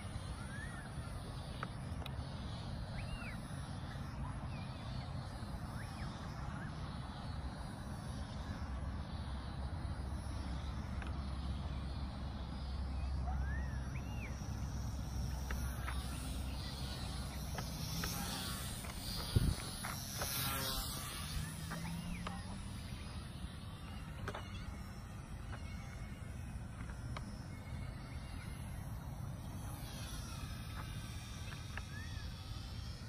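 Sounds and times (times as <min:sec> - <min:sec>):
model plane motor buzzing: 0:00.0 - 0:33.0
bird chirps: 0:02.9 - 0:03.4
wind rumble on microphone: 0:18.9 - 0:20.1.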